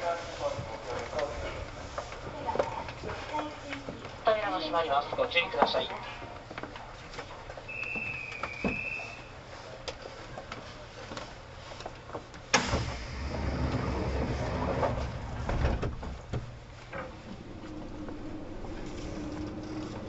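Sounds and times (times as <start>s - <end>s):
quiet train hum: 0.0s - 20.0s
train sliding doors closing: 12.5s - 20.0s
low rumbling and clicks: 12.6s - 20.0s.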